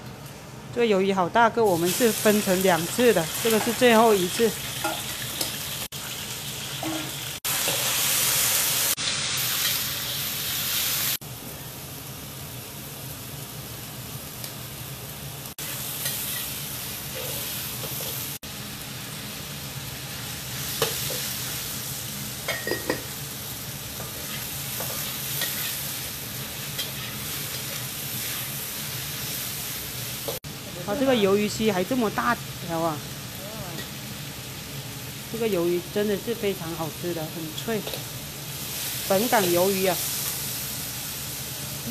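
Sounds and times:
squid sizzling in a wok: 0:01.6 - 0:41.9
spatula scraping a wok: 0:15.6 - 0:18.4, 0:23.9 - 0:29.5.

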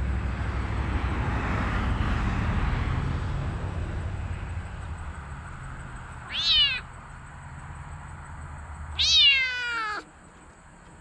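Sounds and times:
kitten meowing: 0:06.2 - 0:06.9, 0:09.0 - 0:10.1.

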